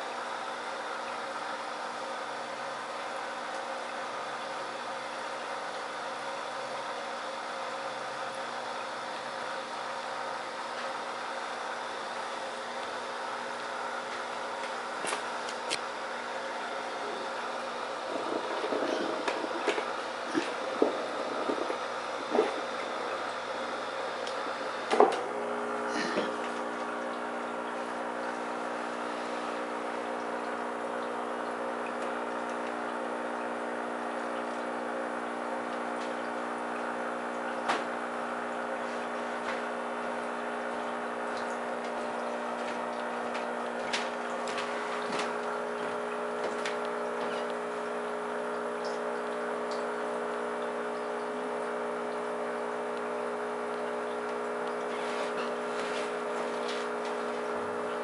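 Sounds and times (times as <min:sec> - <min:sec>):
aquarium equipment hum: 0:00.0 - 0:58.0
air bubbling in water: 0:12.5 - 0:58.0.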